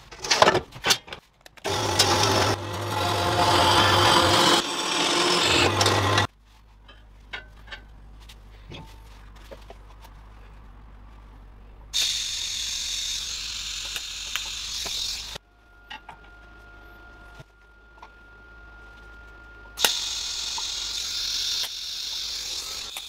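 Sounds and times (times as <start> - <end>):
bandsaw cutting metal tube: 1.6 - 6.3
welding arc hiss: 12.0 - 15.4, 19.8 - 23.0.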